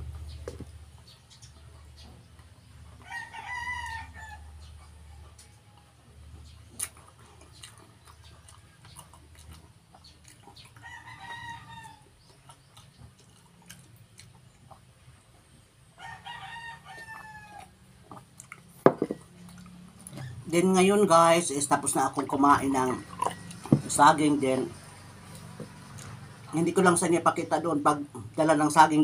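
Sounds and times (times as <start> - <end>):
rooster crowing: 3.0 - 4.6, 10.8 - 12.1, 16.0 - 17.8.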